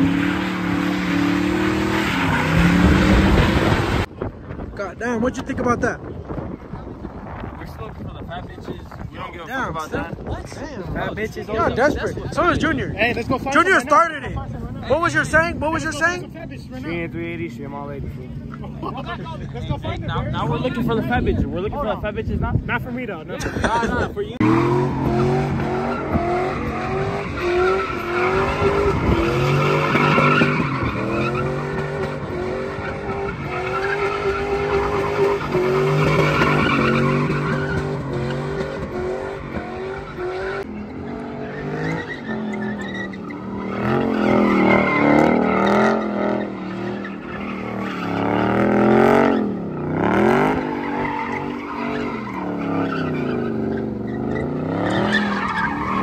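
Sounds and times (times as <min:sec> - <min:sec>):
truck engine revving: 0:00.0 - 0:04.1, 0:24.4 - 0:56.0
tyres squealing on pavement: 0:00.0 - 0:04.1, 0:24.4 - 0:56.0
car engine sweeping revs: 0:00.0 - 0:04.6, 0:24.4 - 0:56.0.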